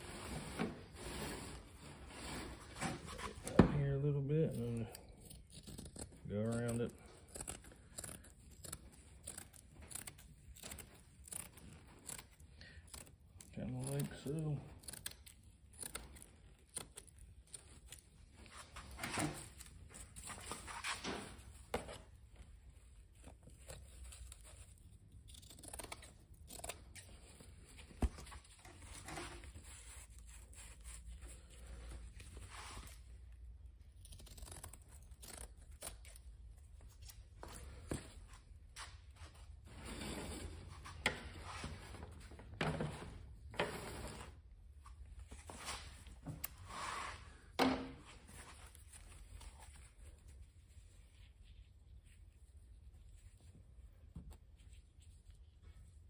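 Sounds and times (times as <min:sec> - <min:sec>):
scissors snipping material: 0:04.5 - 0:14.1, 0:14.7 - 0:18.1, 0:23.2 - 0:27.4, 0:33.6 - 0:37.2
material tearing: 0:04.5 - 0:22.2, 0:23.1 - 0:37.2.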